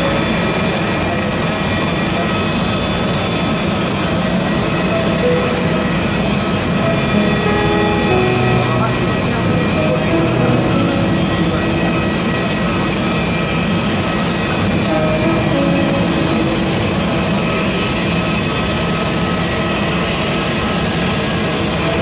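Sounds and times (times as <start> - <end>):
thin high steady tones: 3.8 - 20.2
faint voices: 4.0 - 18.9.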